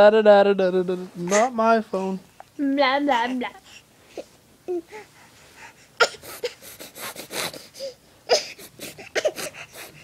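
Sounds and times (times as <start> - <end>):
baby huffing and squealing: 6.0 - 10.0.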